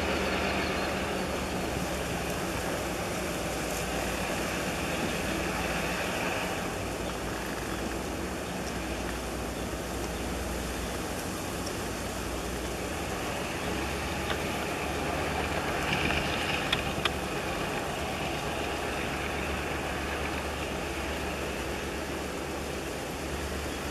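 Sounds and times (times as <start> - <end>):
locomotive engine drone: 0.0 - 23.9
train wheels clicking and rumbling: 12.5 - 21.5.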